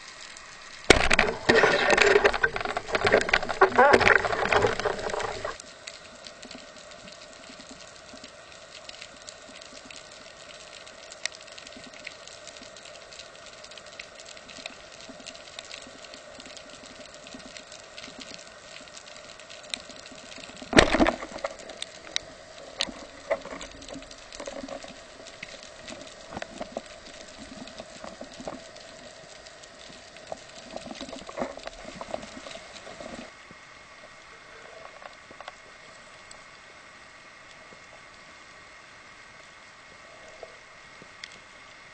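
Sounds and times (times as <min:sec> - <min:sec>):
underwater clicks crackling: 0:00.0 - 0:33.3
speargun firing underwater: 0:00.9 - 0:05.0.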